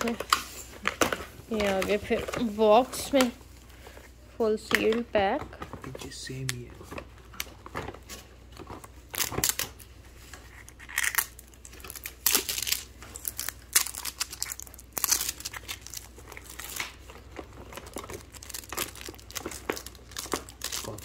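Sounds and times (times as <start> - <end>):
plastic packaging crinkling: 5.6 - 21.0.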